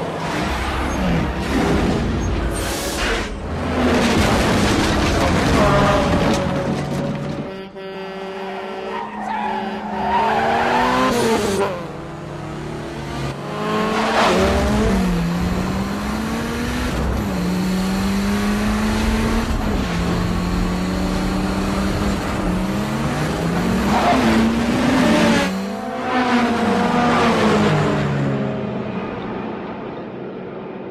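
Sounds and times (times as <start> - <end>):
car engines revving hard: 8.5 - 28.2.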